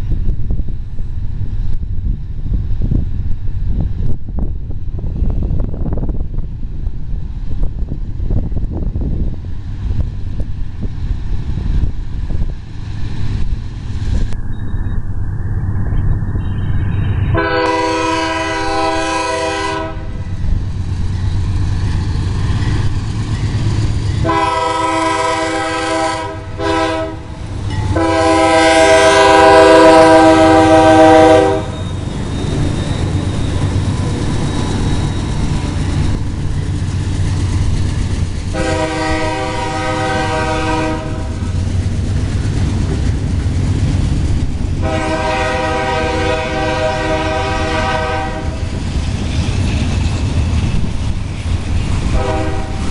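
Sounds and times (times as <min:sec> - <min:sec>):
train wheels rumbling on rails: 0:00.0 - 0:52.9
locomotive air horn blasts: 0:17.3 - 0:20.2, 0:24.2 - 0:31.8, 0:38.5 - 0:41.4, 0:44.8 - 0:48.6, 0:52.1 - 0:52.9.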